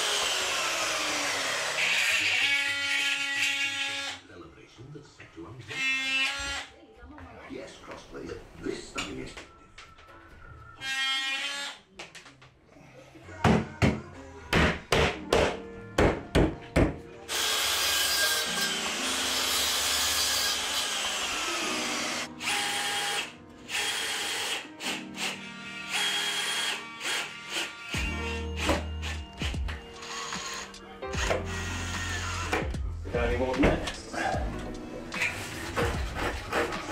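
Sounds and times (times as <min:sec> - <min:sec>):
mitre saw cutting: 0:00.0 - 0:04.2, 0:17.3 - 0:32.6, 0:35.2 - 0:36.9
cordless drill driving screws: 0:29.0 - 0:32.6.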